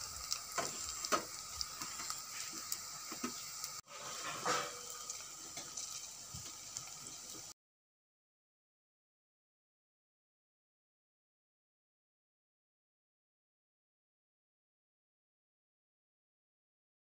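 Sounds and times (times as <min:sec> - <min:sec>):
deep-frying sizzle with pops: 0:00.0 - 0:07.6.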